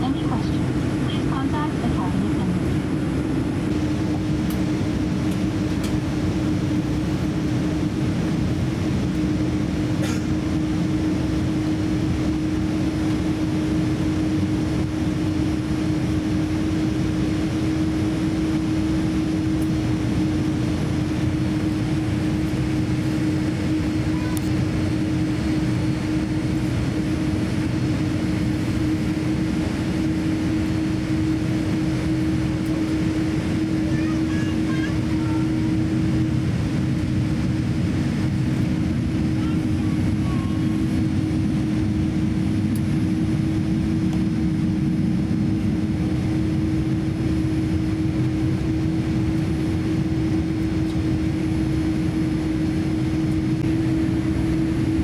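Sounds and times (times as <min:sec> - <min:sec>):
aircraft engines rumbling: 0:00.0 - 0:55.0
steady cabin hum: 0:00.0 - 0:55.0.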